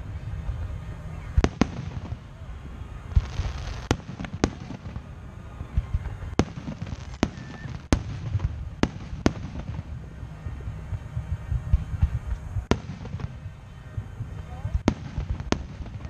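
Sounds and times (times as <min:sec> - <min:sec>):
low rumble of booms: 0:00.0 - 0:16.0
sharp firework cracks: 0:01.4 - 0:09.9, 0:11.7 - 0:13.5, 0:14.8 - 0:16.0.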